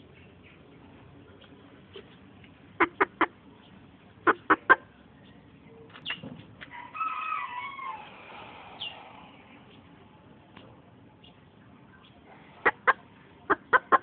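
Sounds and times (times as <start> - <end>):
rooster clucking: 2.8 - 3.4, 4.2 - 4.9, 12.5 - 14.0
rooster wavering call: 6.7 - 9.4.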